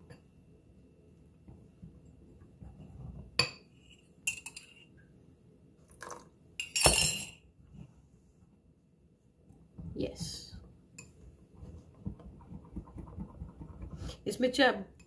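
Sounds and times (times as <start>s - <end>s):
whisking rattle: 11.6s - 14.3s.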